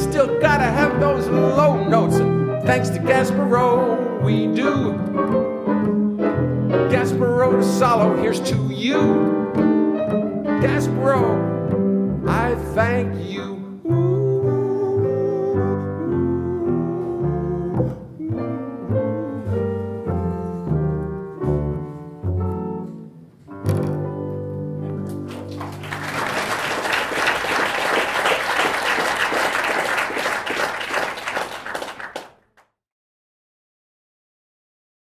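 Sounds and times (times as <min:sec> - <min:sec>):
double bass: 0:00.0 - 0:25.3
piano: 0:00.0 - 0:32.4
audience applauding: 0:25.2 - 0:32.6.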